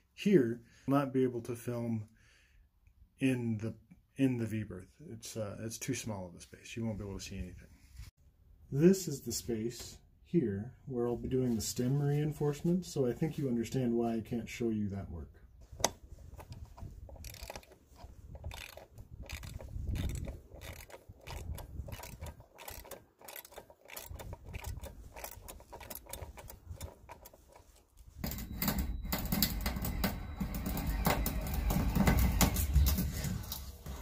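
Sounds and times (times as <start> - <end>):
scattered clicks and knocks: 15.8 - 33.6
mechanical clatter of tool work: 16.4 - 33.2.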